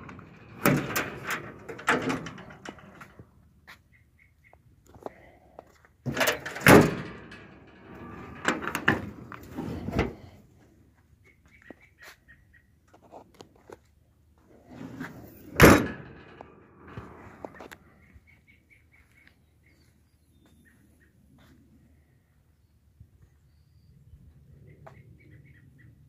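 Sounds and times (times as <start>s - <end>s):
loud metal door slam: 0.0s - 3.0s, 6.1s - 10.3s, 15.4s - 17.2s
metal latches clunking and rattling: 0.0s - 3.4s, 6.1s - 10.4s, 14.7s - 17.8s.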